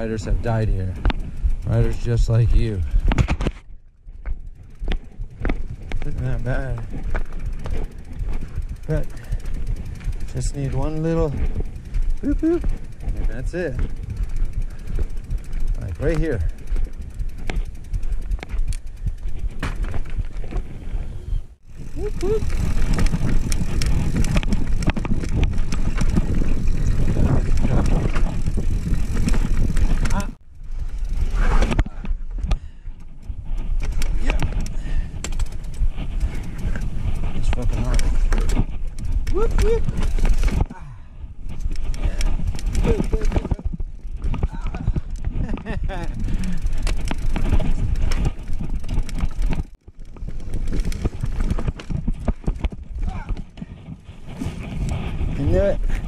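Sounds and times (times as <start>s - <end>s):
bike clacking and rattling over rocks: 0.0s - 21.0s, 21.6s - 56.0s
bike ride rumble: 0.0s - 56.0s.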